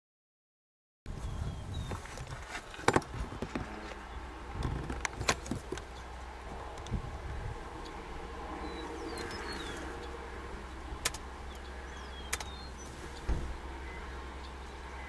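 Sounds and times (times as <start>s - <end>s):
bird chirps: 8.6s - 15.0s
sharp clicks: 11.0s - 12.6s
dull thump: 13.2s - 13.6s.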